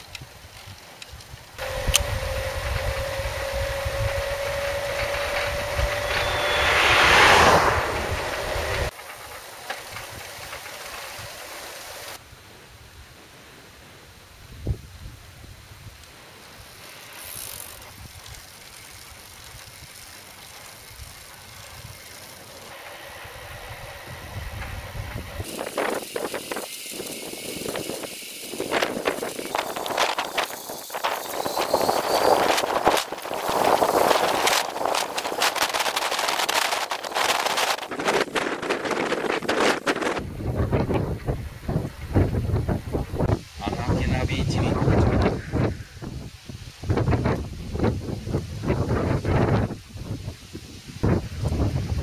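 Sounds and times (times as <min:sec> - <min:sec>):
constant hum: 0:00.0 - 0:12.2
wind rumbling on microphone: 0:00.0 - 0:12.2, 0:14.3 - 0:16.1, 0:20.8 - 0:52.0
bicycle rolling on paved road: 0:00.0 - 0:12.3, 0:15.3 - 0:52.0
car passing: 0:01.6 - 0:10.2, 0:21.6 - 0:25.5.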